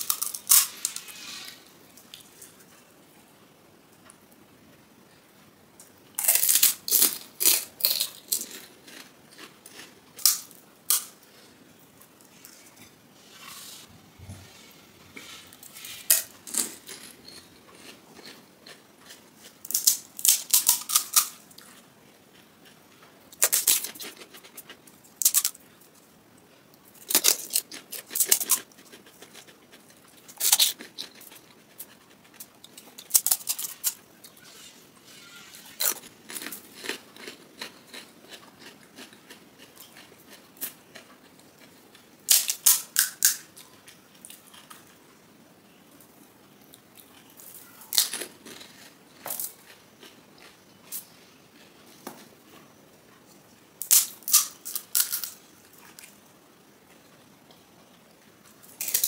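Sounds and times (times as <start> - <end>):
crisp shells crunching in mouth: 6.2 - 11.2, 16.0 - 21.7, 27.1 - 34.0, 35.7 - 41.6, 47.1 - 51.7, 53.8 - 55.4.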